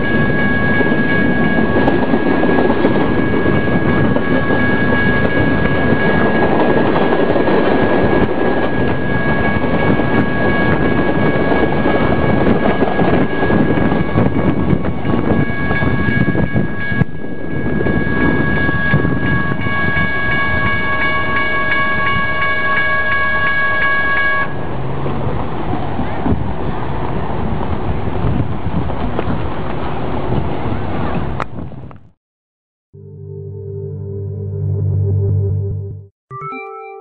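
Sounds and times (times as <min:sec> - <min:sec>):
crossing warning bell ringing: 0:00.0 - 0:24.7
train wheels rolling on rails: 0:00.0 - 0:32.0.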